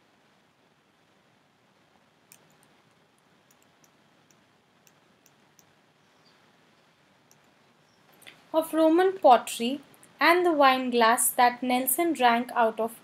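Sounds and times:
computer mouse clicks: 0:02.3 - 0:05.8, 0:07.3 - 0:07.6.

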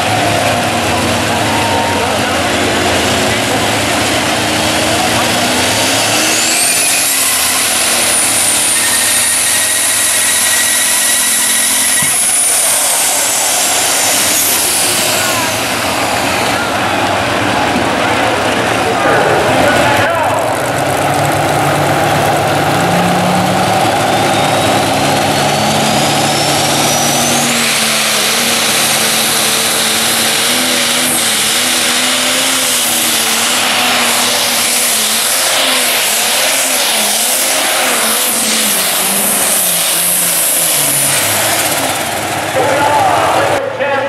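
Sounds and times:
tractor engine revving: 0:00.0 - 0:43.9
turbo whistle: 0:06.0 - 0:15.6, 0:24.0 - 0:28.0.

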